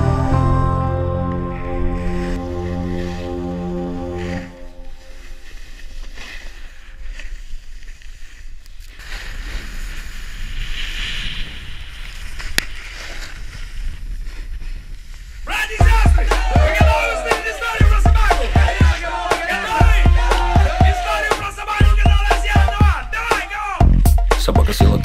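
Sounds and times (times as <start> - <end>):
skis sliding over snow: 1.8 - 15.8.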